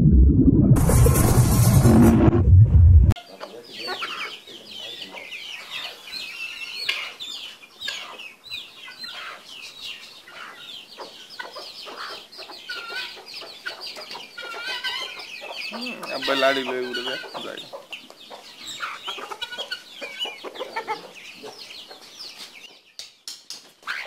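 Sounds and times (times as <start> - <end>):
keets peeping: 3.3 - 22.9
hens clucking: 10.3 - 22.2.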